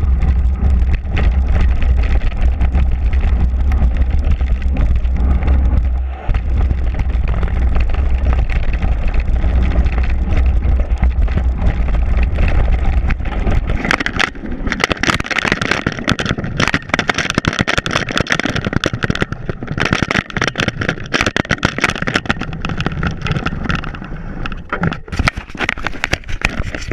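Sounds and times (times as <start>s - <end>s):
bike tyre and trail noise: 0.0s - 26.9s
crackling and clatter in dry leaves: 0.0s - 26.9s
wind buffeting microphone: 0.0s - 26.9s.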